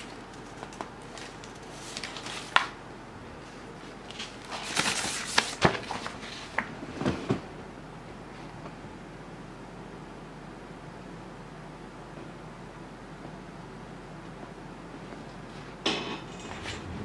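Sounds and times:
paper sheet rustling: 0.0 - 2.7, 3.8 - 6.7.

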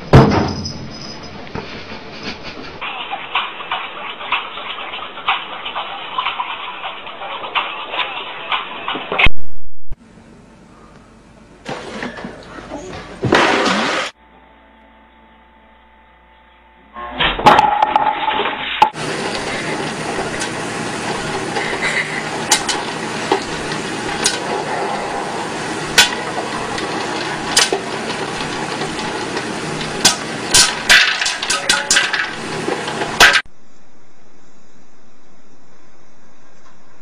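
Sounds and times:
oil sizzling: 18.2 - 33.5
popcorn popping: 18.9 - 33.5.

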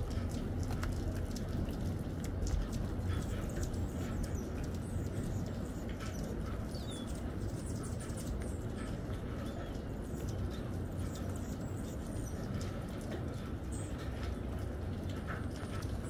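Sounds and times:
steady low rumble: 0.0 - 16.0
hummingbirds chipping and squeaking: 3.0 - 12.6.

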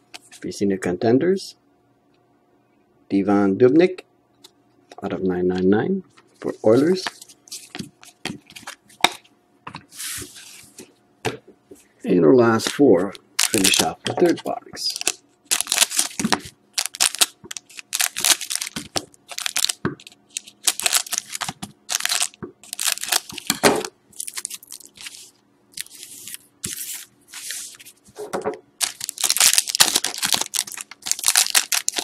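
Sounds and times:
scissors cutting foil wrapper: 13.4 - 13.9, 15.0 - 16.2, 16.8 - 23.6, 24.2 - 25.2, 28.8 - 32.0
foil wrappers crinkling and tearing: 13.4 - 23.6, 24.2 - 28.0, 28.8 - 32.0.

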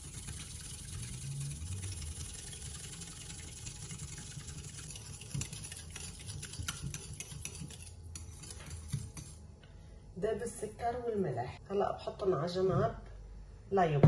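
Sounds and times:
whisk ticking against glass bowl: 0.0 - 9.4.

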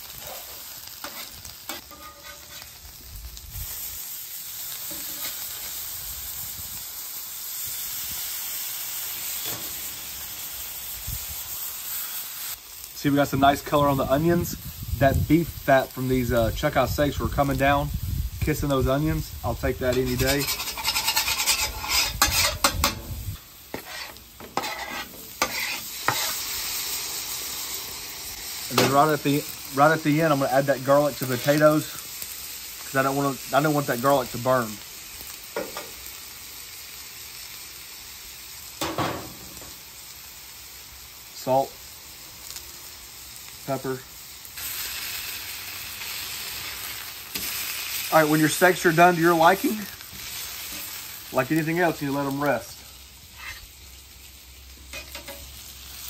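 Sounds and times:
vegetables scraped onto griddle: 0.0 - 6.0, 9.0 - 10.3, 19.2 - 27.8, 44.2 - 51.2, 53.2 - 53.9, 54.9 - 55.6
meat sizzling on a griddle: 0.0 - 56.0
spatula clicks and scrapes: 19.9 - 23.0, 23.7 - 26.4.

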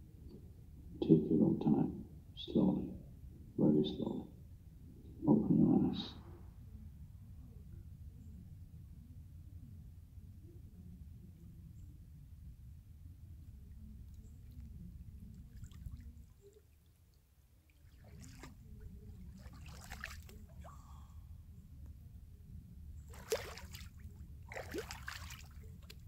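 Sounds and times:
water splashing: 17.7 - 20.9, 23.1 - 26.0
steady low rumble: 20.3 - 23.2.

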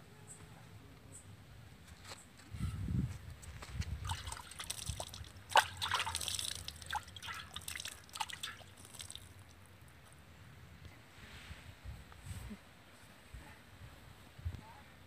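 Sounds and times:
hands splashing water in a pot: 4.0 - 9.6.

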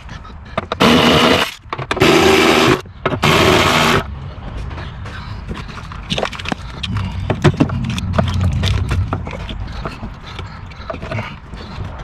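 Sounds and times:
low rumble: 6.6 - 10.3.

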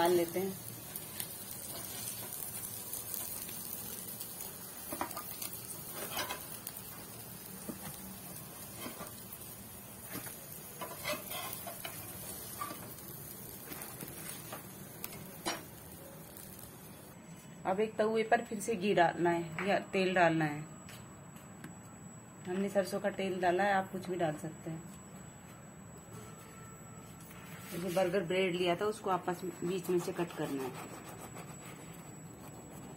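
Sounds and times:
oil sizzling in a pan: 0.0 - 17.1
metal spatula scraping a pan: 5.8 - 6.6, 10.8 - 12.9.

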